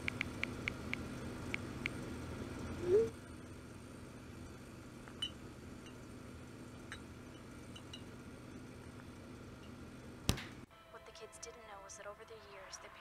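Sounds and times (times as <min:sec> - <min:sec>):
steady low hum: 0:00.0 - 0:10.7
glass bottles clinking: 0:07.7 - 0:08.1.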